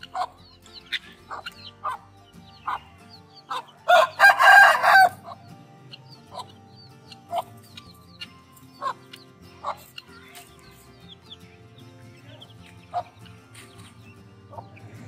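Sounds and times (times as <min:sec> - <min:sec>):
chicks peeping: 0:00.0 - 0:15.0
hen clucks: 0:00.0 - 0:15.0
rooster crowing: 0:03.9 - 0:05.2.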